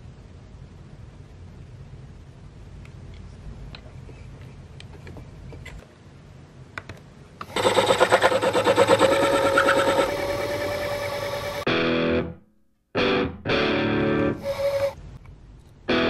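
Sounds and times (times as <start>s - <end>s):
faint hum: 0.0s - 12.9s
lathe cutting metal with whine: 7.5s - 11.7s.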